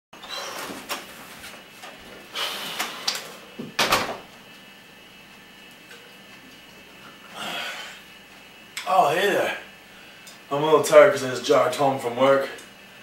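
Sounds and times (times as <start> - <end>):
door thumping shut: 3.6 - 4.2.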